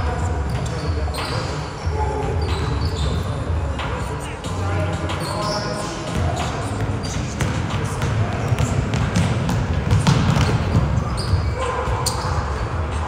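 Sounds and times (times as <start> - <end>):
crowd noise: 0.0 - 13.0
basketball bouncing on gym floor: 6.1 - 12.4.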